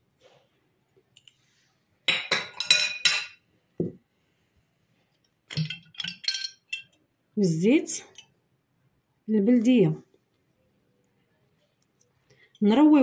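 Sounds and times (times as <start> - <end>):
metal spoon clinking on pot: 2.1 - 3.4, 5.5 - 7.0.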